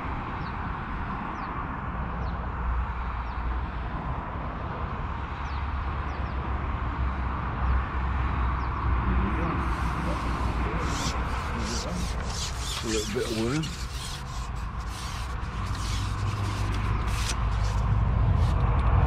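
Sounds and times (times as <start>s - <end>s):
low outdoor rumble buffeting: 8.9s - 19.0s
bird chirping: 9.4s - 17.8s.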